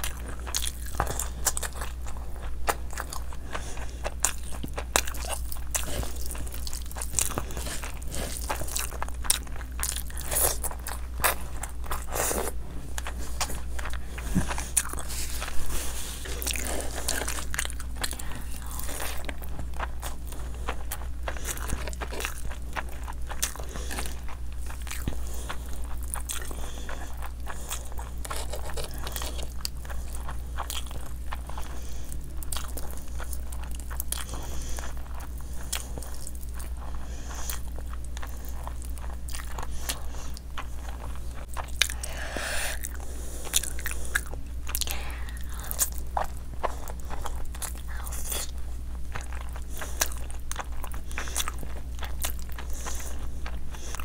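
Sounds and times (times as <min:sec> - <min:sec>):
person chewing food: 0:00.0 - 0:54.0
steady low hum: 0:00.0 - 0:54.0.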